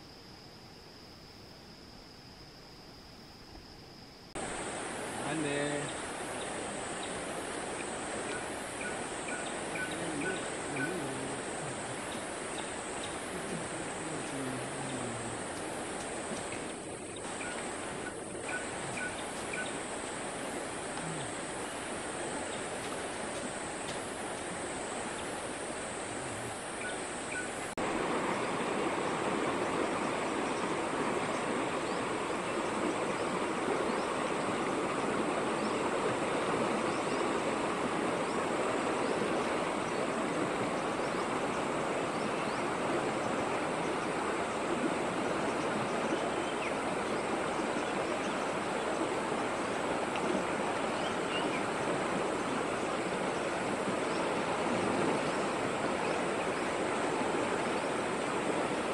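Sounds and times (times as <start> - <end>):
faint high steady tone: 0.0 - 20.0
river rushing over stones: 4.4 - 58.9.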